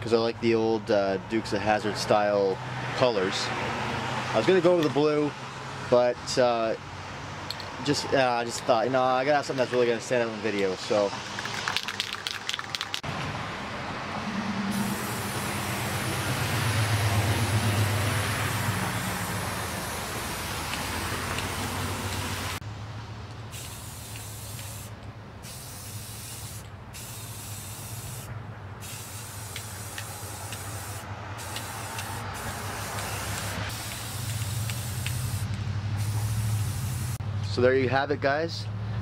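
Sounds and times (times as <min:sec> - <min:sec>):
spray paint can hissing: 0:11.2 - 0:13.1, 0:14.7 - 0:16.4, 0:17.5 - 0:22.5, 0:23.5 - 0:37.2.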